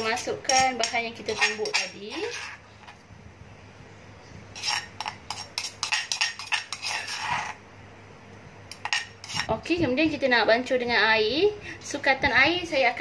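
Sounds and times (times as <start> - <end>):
utensils scraping a pestle: 0.0 - 3.0, 4.5 - 7.6, 8.7 - 9.6.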